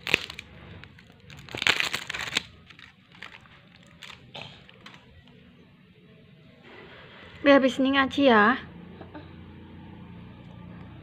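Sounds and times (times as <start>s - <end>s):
plastic packaging crinkling and tearing: 0.0s - 5.1s.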